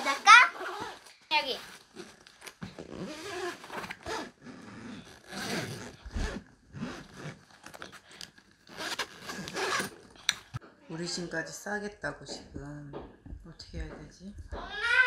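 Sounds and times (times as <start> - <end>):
suitcase zipper rasping: 0.1 - 1.0, 1.7 - 10.6.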